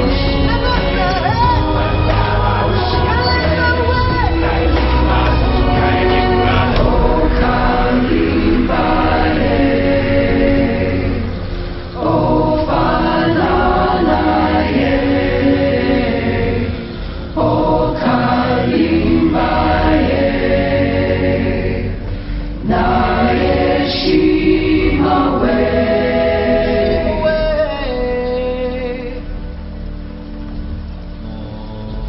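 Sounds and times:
choral singing: 0:00.0 - 0:29.6.

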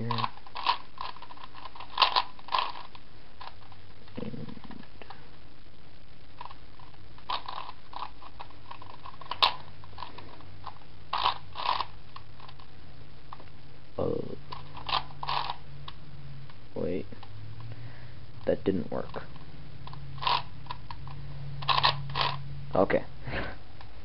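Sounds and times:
puzzle cube clicking as turned: 0:00.0 - 0:03.6, 0:07.2 - 0:12.6, 0:14.5 - 0:15.6, 0:19.9 - 0:22.4.

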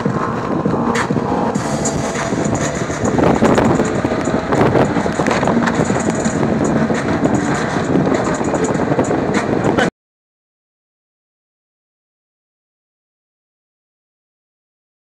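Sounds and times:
off-road vehicle engine: 0:00.0 - 0:09.9
wind buffeting microphone: 0:00.0 - 0:09.9.

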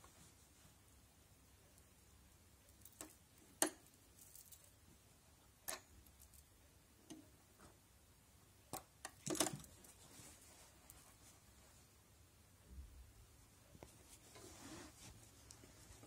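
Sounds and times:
handling rustle: 0:03.9 - 0:04.8, 0:09.2 - 0:11.9, 0:13.8 - 0:16.0.

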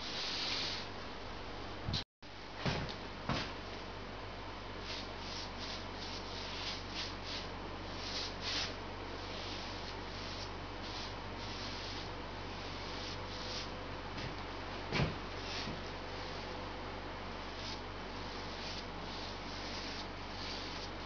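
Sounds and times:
steady low hum: 0:00.0 - 0:21.0
paintbrush brushing on wood: 0:04.9 - 0:13.8, 0:17.4 - 0:21.0.

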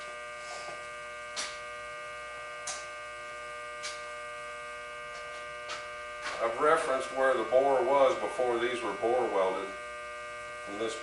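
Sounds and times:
electrical hum of machinery: 0:00.0 - 0:11.0
sharp tick: 0:02.6 - 0:02.9.

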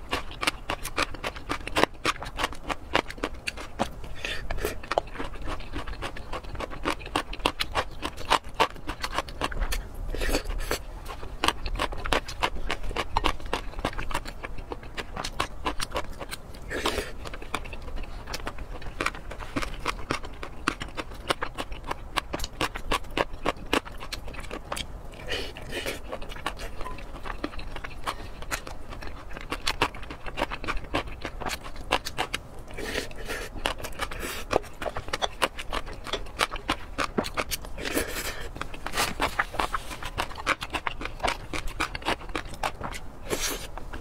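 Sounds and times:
wet chewing and lip smacking: 0:00.0 - 0:44.0.

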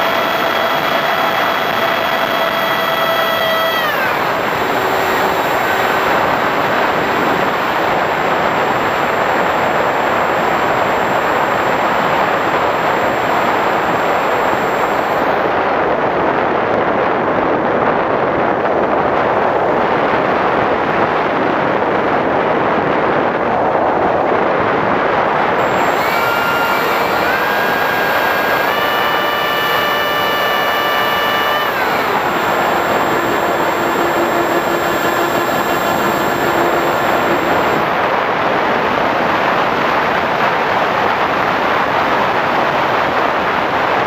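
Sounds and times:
thin motor whine: 0:00.0 - 0:16.2, 0:25.5 - 0:39.8
rushing air and fan noise: 0:00.0 - 0:44.0.

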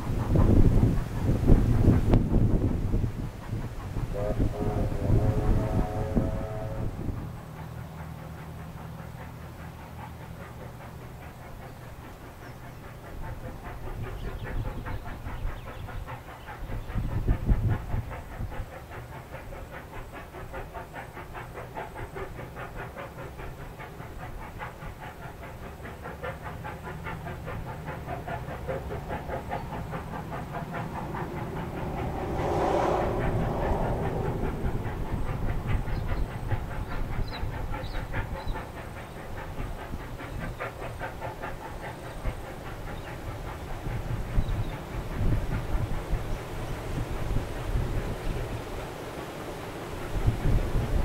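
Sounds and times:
wind buffeting microphone: 0:00.0 - 0:09.2, 0:11.9 - 0:51.0
steam locomotive exhaust beats: 0:00.0 - 0:51.0
low drone: 0:04.0 - 0:07.5, 0:28.5 - 0:37.4.

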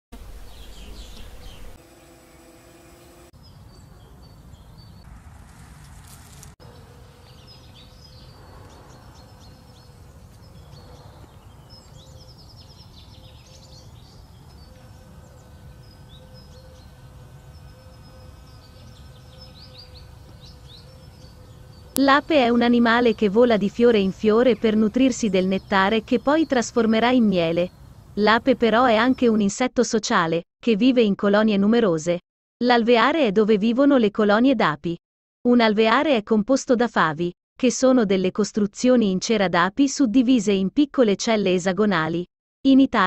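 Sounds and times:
bees buzzing: 0:00.2 - 0:03.9, 0:04.5 - 0:23.6
small birds chirping: 0:00.4 - 0:01.8, 0:03.0 - 0:05.1, 0:06.4 - 0:22.0.

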